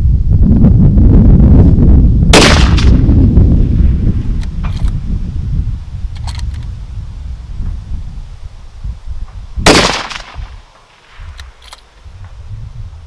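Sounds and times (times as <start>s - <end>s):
wind buffeting microphone: 0.0s - 13.0s
rifle shot: 2.3s - 3.2s, 9.6s - 10.6s.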